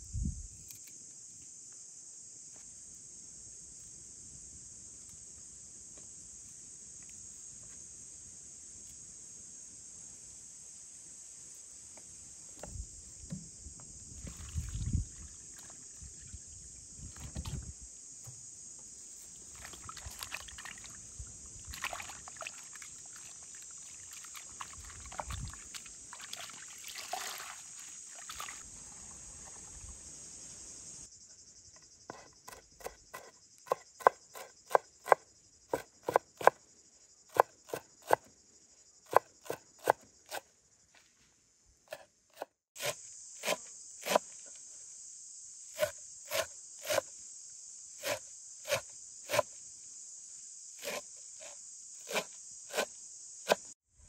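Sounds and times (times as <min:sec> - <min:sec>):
insect chirring: 0:00.0 - 0:02.3, 0:03.2 - 0:41.0, 0:41.6 - 0:53.8.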